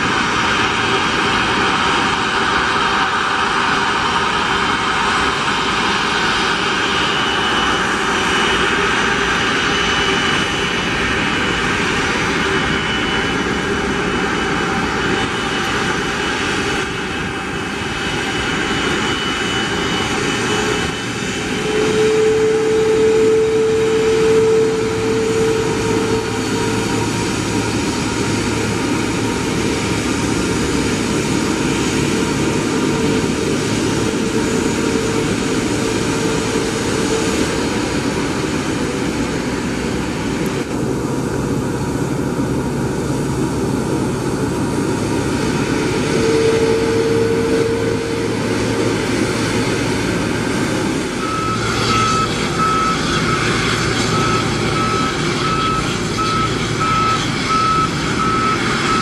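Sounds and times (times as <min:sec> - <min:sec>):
jet engines at taxi power: 0:00.0 - 0:59.0.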